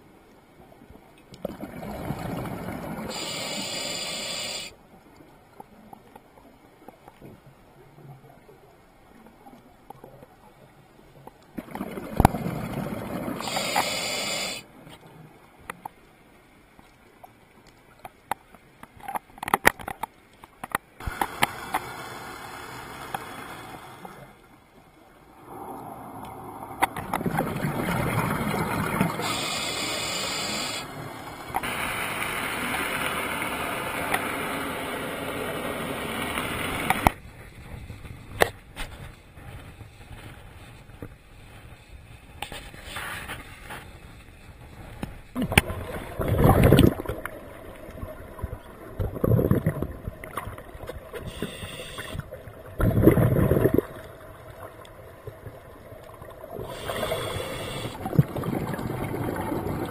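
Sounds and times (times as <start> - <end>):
small clicks and crackles: 4.9 - 12.8, 14.8 - 21.9
scuba regulator exhaled bubbles: 45.4 - 47.3, 49.0 - 50.6, 51.3 - 54.2, 56.5 - 59.9.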